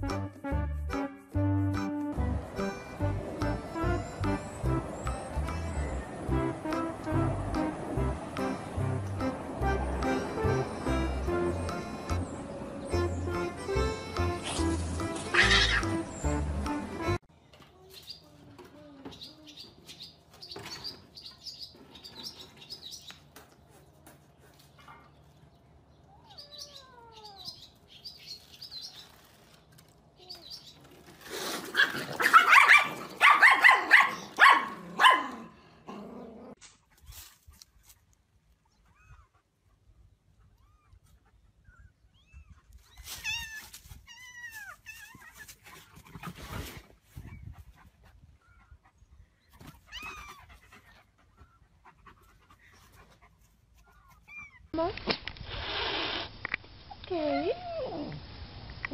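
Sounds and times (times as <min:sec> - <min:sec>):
dog barking: 0:32.2 - 0:35.5
dog panting: 0:50.2 - 0:54.2.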